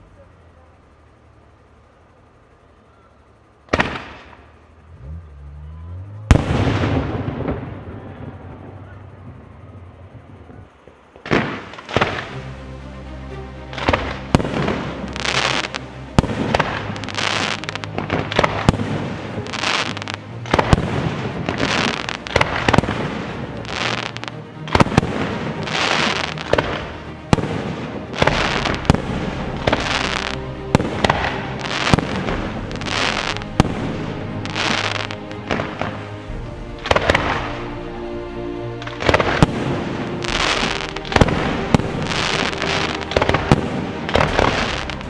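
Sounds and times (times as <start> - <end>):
music with low tones: 0.0 - 45.0
fireworks bangs: 3.7 - 4.7, 6.3 - 12.5, 13.7 - 45.0
fireworks launching hisses: 13.7 - 38.1, 38.7 - 45.0.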